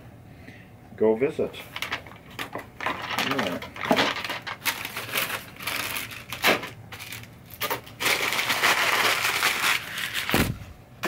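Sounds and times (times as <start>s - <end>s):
paper rustling and crinkling: 2.8s - 10.6s.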